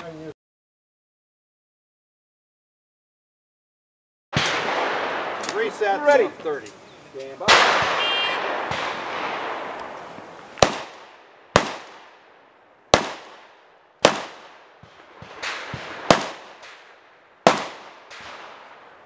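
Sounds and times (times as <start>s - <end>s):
pistol shots with echo: 4.4s - 6.0s, 7.4s - 10.0s, 10.6s - 18.8s
faint cracks: 4.4s - 11.1s.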